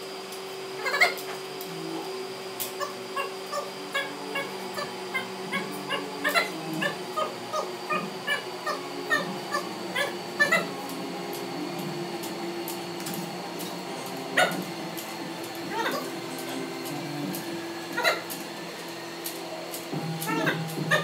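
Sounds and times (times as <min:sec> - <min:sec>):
steady hum: 0:00.0 - 0:21.0
high-pitched animal calls: 0:00.8 - 0:01.4, 0:02.8 - 0:10.9, 0:15.6 - 0:16.5, 0:17.9 - 0:18.3, 0:20.2 - 0:21.0.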